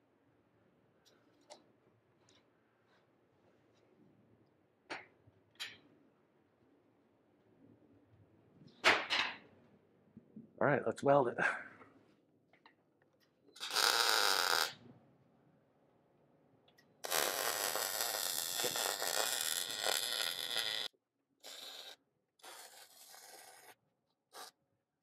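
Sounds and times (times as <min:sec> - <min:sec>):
welding arc crackling and hissing: 0:13.6 - 0:14.8, 0:17.0 - 0:23.7.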